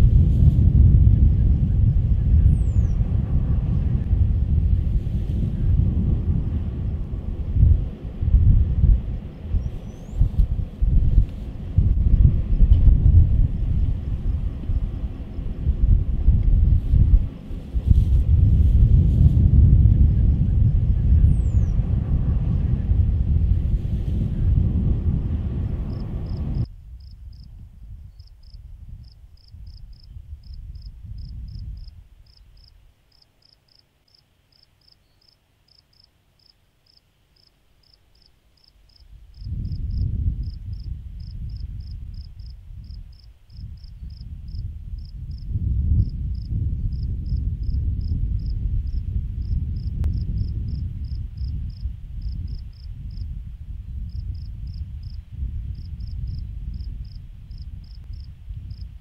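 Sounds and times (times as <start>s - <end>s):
low rumble: 0.0s - 32.4s, 39.1s - 59.0s
insects chirping: 28.2s - 45.4s.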